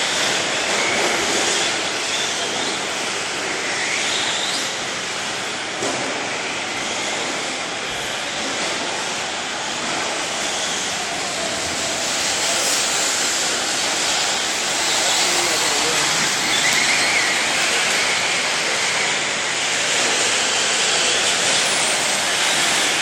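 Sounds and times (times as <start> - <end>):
rc trucks racing: 0.0 - 23.0.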